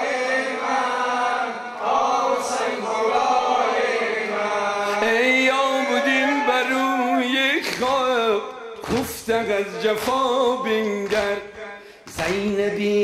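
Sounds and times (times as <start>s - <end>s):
male voices chanting a lament: 0.0s - 13.0s
man singing lead: 4.9s - 13.0s.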